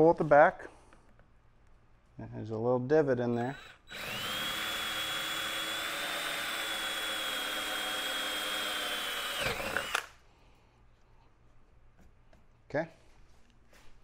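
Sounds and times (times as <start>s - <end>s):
cordless drill boring plastic: 3.4s - 10.2s.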